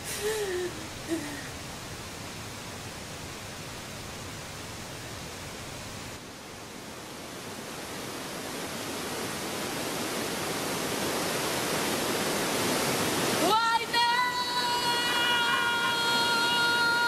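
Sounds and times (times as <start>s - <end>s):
flowing river water: 0.0s - 17.0s.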